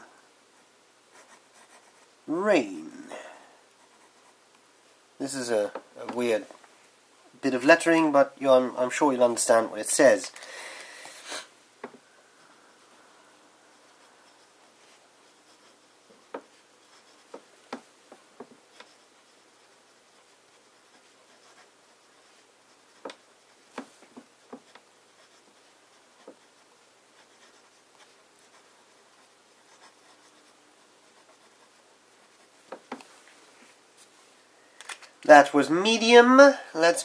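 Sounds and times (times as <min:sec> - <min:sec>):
fountain pen scratching paper: 0:13.8 - 0:14.5, 0:15.2 - 0:17.5, 0:18.7 - 0:23.5, 0:24.5 - 0:32.6.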